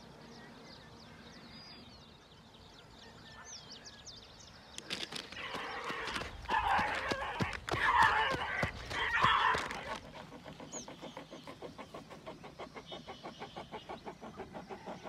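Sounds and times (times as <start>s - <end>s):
faint bird chirps: 0.0s - 6.1s
rustling and footfalls in dry grass: 4.8s - 10.2s
dog crying roughly: 5.4s - 10.0s.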